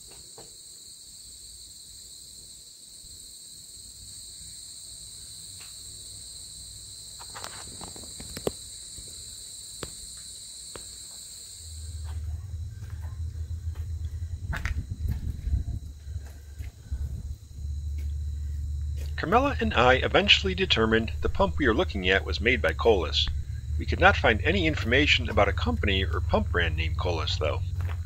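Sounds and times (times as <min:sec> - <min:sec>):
insect chorus trilling: 0:00.0 - 0:28.0
low rumble: 0:11.8 - 0:28.0.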